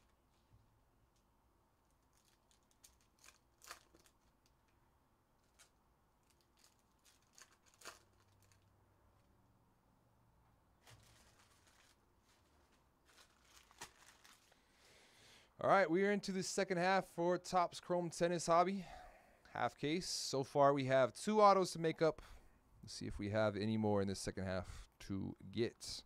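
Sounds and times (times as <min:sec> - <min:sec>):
trading cards clicking and rustling: 0:05.4 - 0:08.7.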